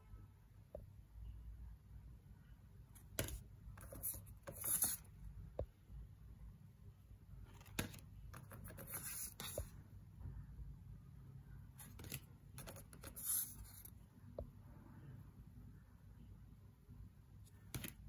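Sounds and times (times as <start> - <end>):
cards sliding and rustling: 3.1 - 5.1, 7.5 - 9.7, 11.8 - 13.9, 17.5 - 18.0.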